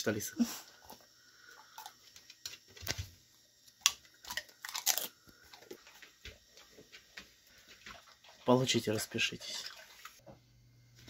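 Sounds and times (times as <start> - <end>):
dog chewing crunchy food: 3.8 - 7.0.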